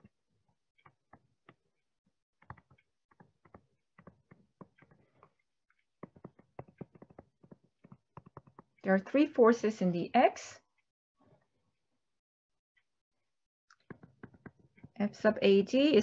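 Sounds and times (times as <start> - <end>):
stylus tapping on tablet: 0.8 - 1.7, 2.4 - 8.9, 13.7 - 15.0.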